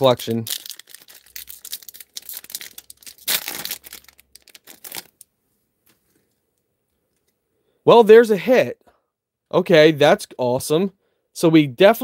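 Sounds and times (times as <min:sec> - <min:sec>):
foil pack torn and crinkled: 0:00.0 - 0:05.2.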